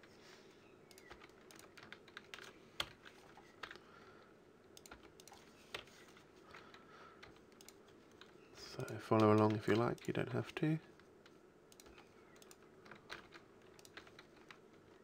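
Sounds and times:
computer keyboard keystrokes: 0:00.9 - 0:03.8, 0:04.7 - 0:05.9, 0:06.5 - 0:10.2, 0:11.2 - 0:14.6.

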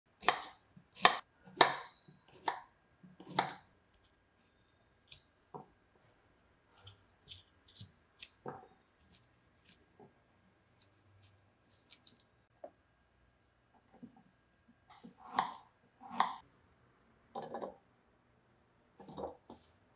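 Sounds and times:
knife chopping on wooden board: 0:00.2 - 0:02.6, 0:03.2 - 0:03.6
knife cutting fruit crunching: 0:10.8 - 0:12.2.

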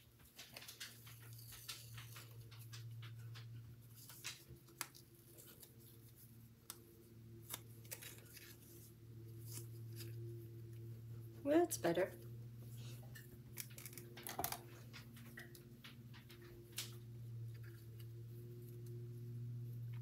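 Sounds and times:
ribbon and card rustling: 0:00.0 - 0:20.0
steady low hum: 0:00.0 - 0:20.0.

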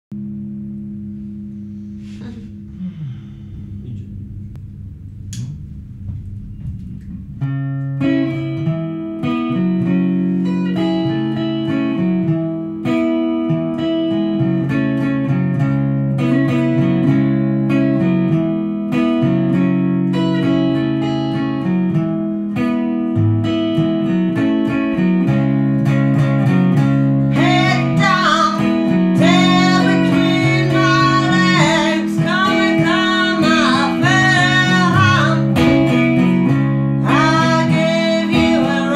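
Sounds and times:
picked guitar pattern: 0:00.2 - 0:38.9
person singing: 0:27.3 - 0:36.0, 0:37.0 - 0:38.9.

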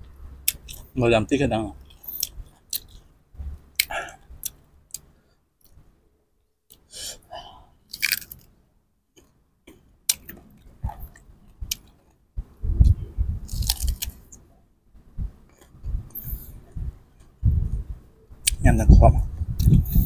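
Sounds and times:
crunchy bites and chewing: 0:07.9 - 0:08.5, 0:13.4 - 0:14.4.

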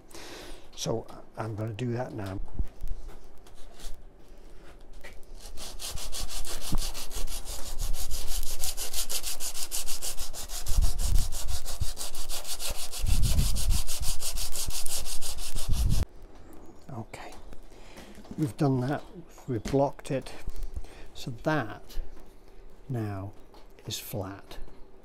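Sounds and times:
sandpaper rasping on metal: 0:05.4 - 0:16.0.

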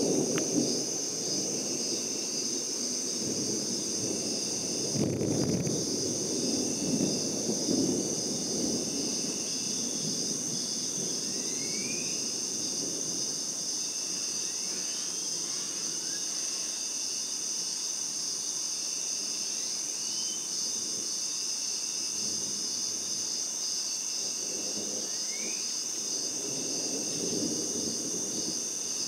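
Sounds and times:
distant thunder rumble: 0:00.0 - 0:14.9, 0:24.2 - 0:29.0
crickets and katydids chorus: 0:00.0 - 0:29.0
short rising insect calls: 0:10.6 - 0:12.5, 0:13.2 - 0:17.4, 0:19.2 - 0:29.0.

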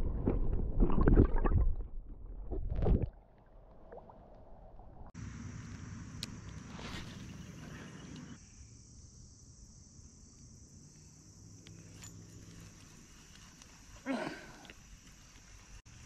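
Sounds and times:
insects trilling: 0:05.2 - 0:16.0.

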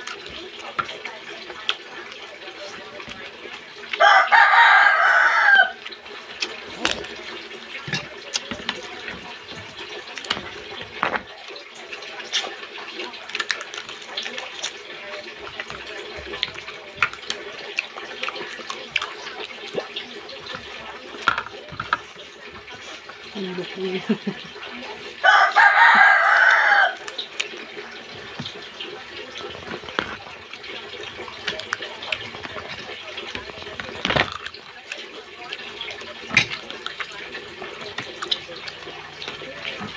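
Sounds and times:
rooster crowing: 0:04.0 - 0:05.8, 0:25.2 - 0:27.0
crab shell cracking by hand: 0:13.2 - 0:14.8.

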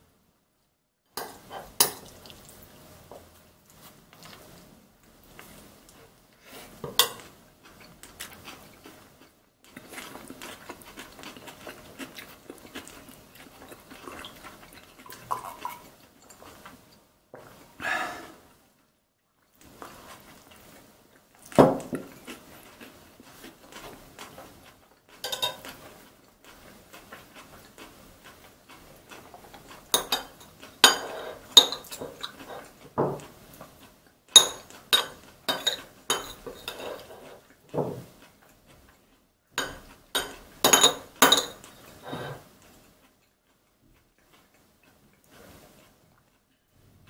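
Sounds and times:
metal spoon scraping ceramic plate: 0:35.0 - 0:37.3.

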